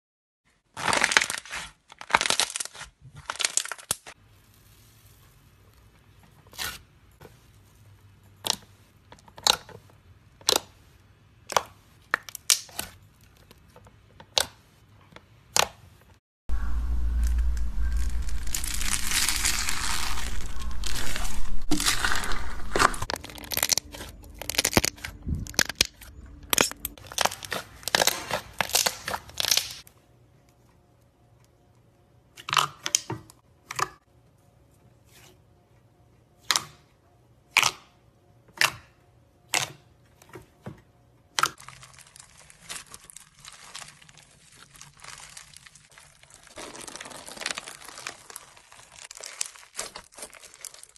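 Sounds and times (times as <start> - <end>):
slime crackling: 16.8 - 29.8, 41.5 - 50.9.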